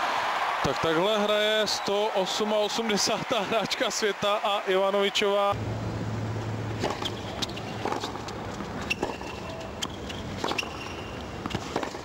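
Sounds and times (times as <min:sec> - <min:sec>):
shoes squeaking on court: 0:06.8 - 0:12.0
tennis ball pops off rackets: 0:06.8 - 0:12.0.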